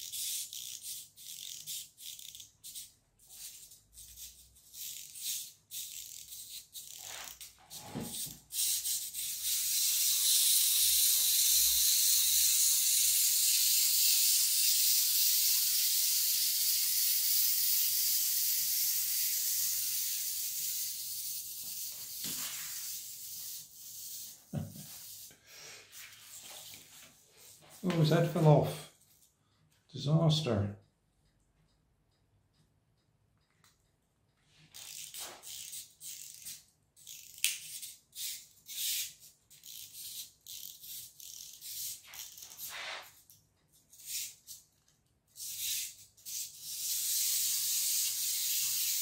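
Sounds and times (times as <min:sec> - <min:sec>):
clockwork toy clicking and clattering: 0:00.0 - 0:22.2, 0:34.7 - 0:49.0
high whir of wind-up motor: 0:08.6 - 0:25.3, 0:45.4 - 0:49.0.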